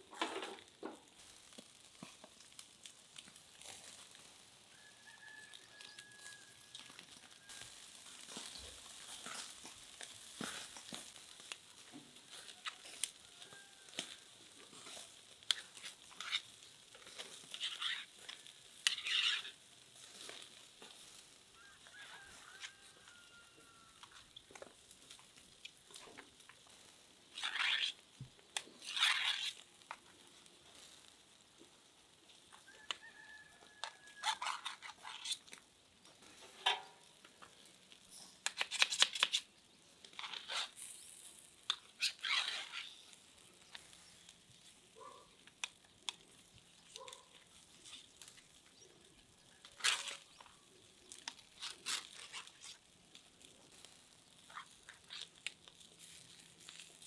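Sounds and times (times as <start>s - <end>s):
knife scraping metal skewers: 13.9s - 20.5s, 27.3s - 30.0s, 33.8s - 35.6s, 38.2s - 39.5s, 40.1s - 43.5s, 49.6s - 50.5s, 51.1s - 52.9s
meat sliding off skewer: 27.3s - 28.0s.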